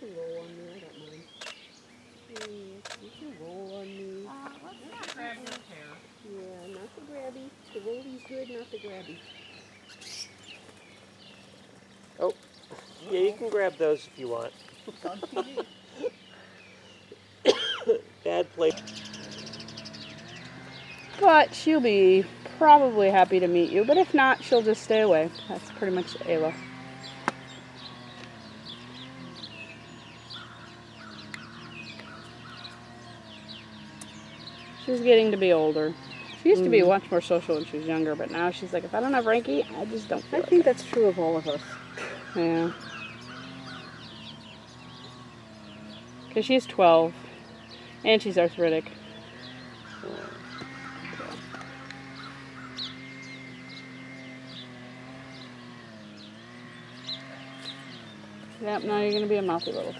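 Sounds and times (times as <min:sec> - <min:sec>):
birds chirping: 0:00.0 - 0:59.9
low droning hum: 0:00.0 - 0:59.9.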